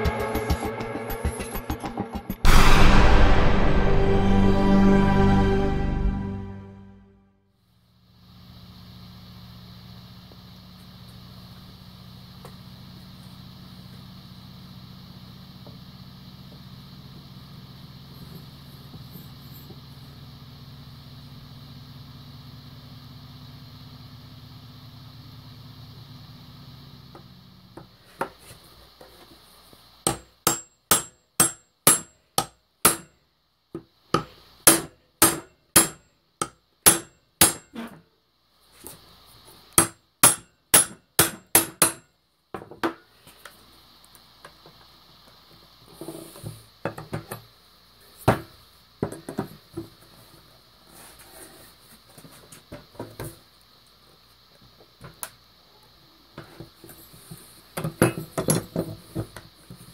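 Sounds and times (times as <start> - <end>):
steady hum: 0.0 - 7.2
hammer striking steel bar: 30.1 - 33.1, 34.7 - 36.0, 36.9 - 37.7, 39.8 - 42.0.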